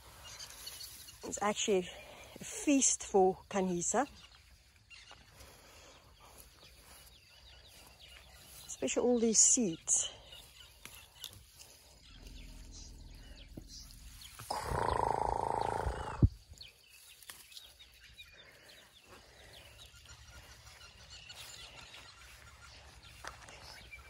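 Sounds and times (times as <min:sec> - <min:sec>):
elephant calf roaring: 0:12.1 - 0:16.3.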